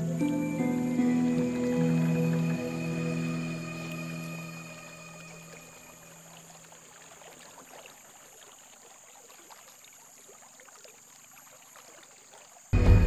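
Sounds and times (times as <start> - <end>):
loud music: 12.8 - 13.0.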